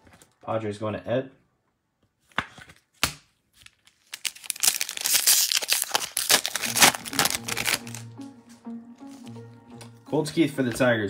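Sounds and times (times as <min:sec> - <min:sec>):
foil wrapper tearing and crinkling: 0:03.0 - 0:08.0.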